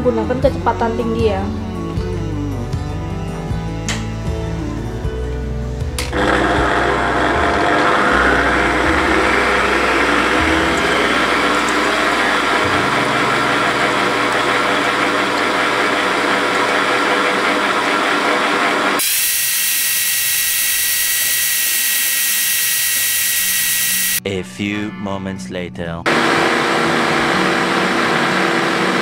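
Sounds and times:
stand mixer whirring: 6.1 - 24.2, 26.1 - 29.0.

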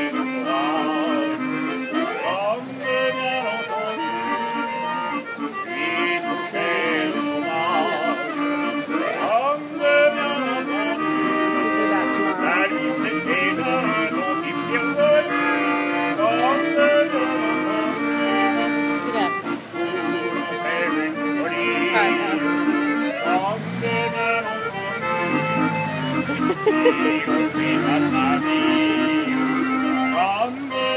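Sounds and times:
barrel organ playing a tune: 0.0 - 30.9.

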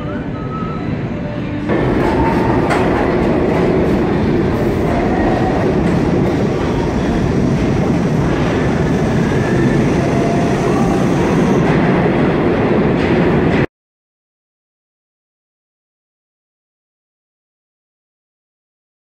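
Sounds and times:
train wheels rumbling on rails: 0.0 - 13.7.

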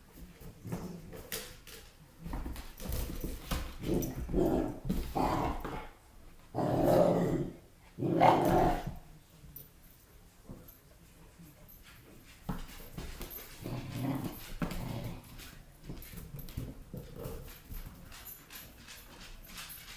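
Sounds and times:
puppy growling and barking: 6.6 - 8.9.

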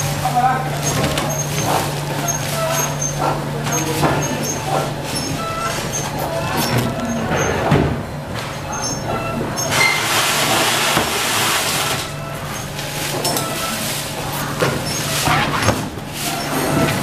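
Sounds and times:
low machine hum: 0.0 - 17.0.

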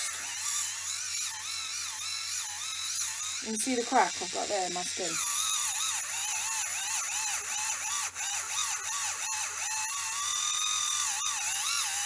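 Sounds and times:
electric callus remover whining: 0.0 - 12.0.

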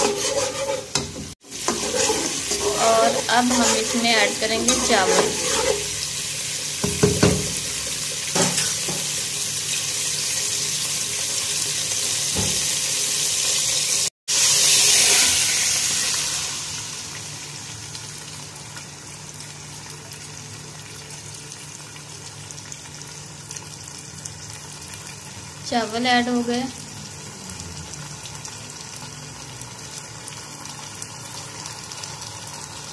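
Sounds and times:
rice sizzling in oil: 0.0 - 32.9
seeds sizzling in hot oil: 0.0 - 32.9
knocks on pot: 6.8 - 7.6.

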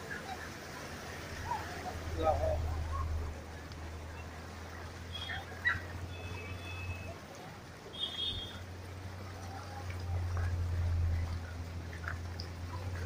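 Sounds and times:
faint distant voices: 0.0 - 13.0
low street rumble: 0.0 - 13.0.

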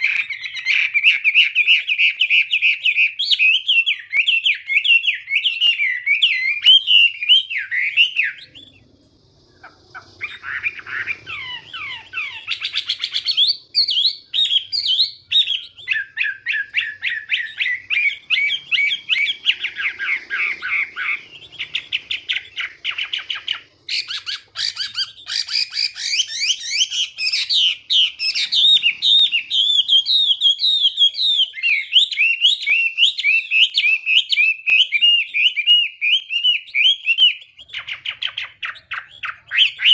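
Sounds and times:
bird singing whistled phrases: 0.0 - 9.0, 9.6 - 39.9.

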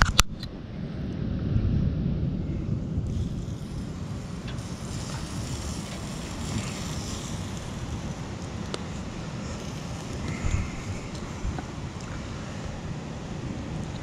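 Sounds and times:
sharp click: 0.0 - 0.5
ocean surf washing: 0.0 - 14.0
wind buffeting microphone: 0.0 - 14.0.

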